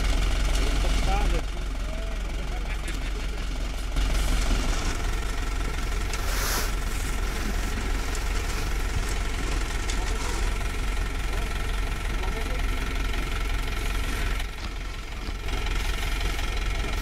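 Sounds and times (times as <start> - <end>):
diesel engines rumbling: 0.0 - 17.0
short hiss: 6.2 - 6.8.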